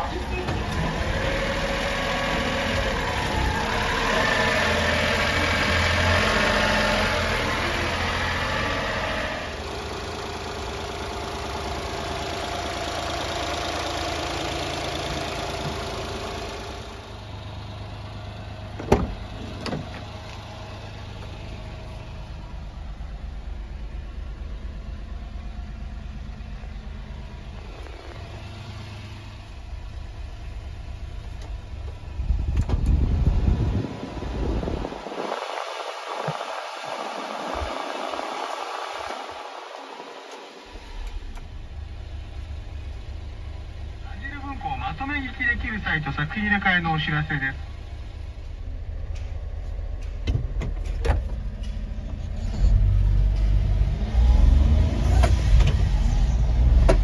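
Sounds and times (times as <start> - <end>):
small truck engine idling: 0.0 - 32.5, 40.9 - 53.6.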